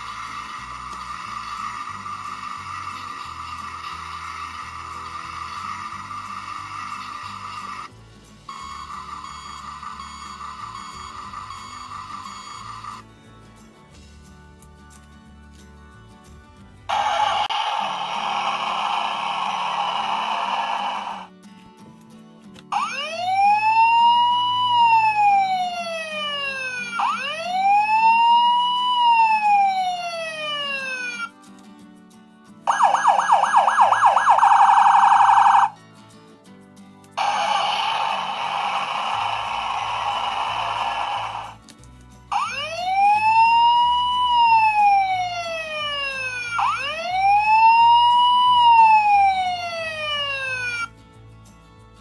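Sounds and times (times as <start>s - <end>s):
hissing noise: 0.0s - 7.9s, 16.9s - 21.3s, 37.2s - 41.6s
faint background music: 0.0s - 52.0s
toy siren wailing: 22.8s - 31.3s, 32.7s - 35.7s, 37.2s - 41.6s, 42.3s - 50.9s.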